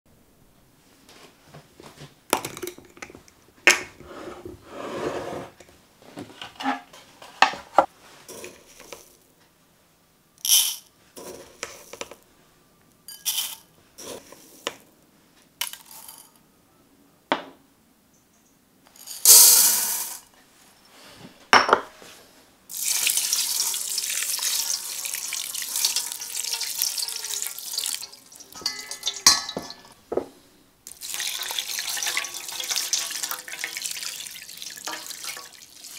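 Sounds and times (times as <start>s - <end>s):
rice poured into bowl: 22.7s - 29.7s, 30.9s - 35.9s
water running over rice: 22.7s - 29.7s, 30.9s - 35.9s.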